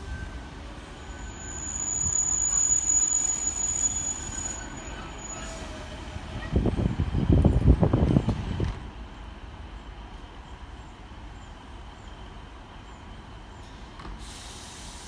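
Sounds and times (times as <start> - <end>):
train brake squeal: 0.0 - 5.9, 12.8 - 15.0
low train rumbling: 0.0 - 15.0.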